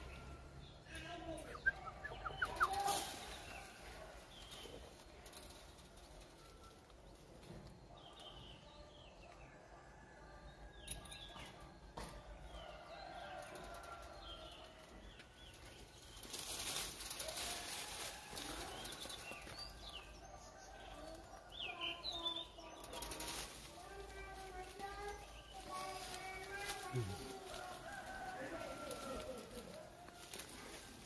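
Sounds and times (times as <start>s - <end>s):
rustling of leaves and branches: 0.0s - 9.4s, 10.8s - 31.0s.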